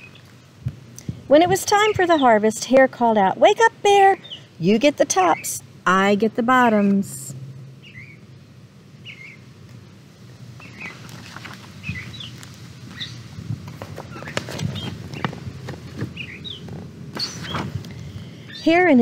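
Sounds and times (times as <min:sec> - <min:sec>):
small bird chirping: 0:00.0 - 0:00.3, 0:04.0 - 0:05.6, 0:07.8 - 0:08.3, 0:09.0 - 0:09.5, 0:10.6 - 0:13.3, 0:14.0 - 0:17.7
book rustling and knocks: 0:13.6 - 0:17.8.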